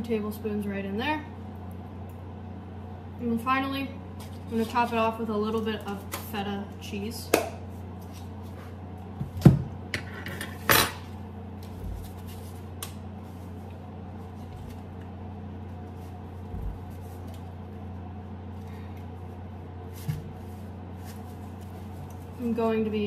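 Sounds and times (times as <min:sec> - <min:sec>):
low steady hum: 0:00.0 - 0:23.0
kitchenware clattering: 0:10.0 - 0:11.1.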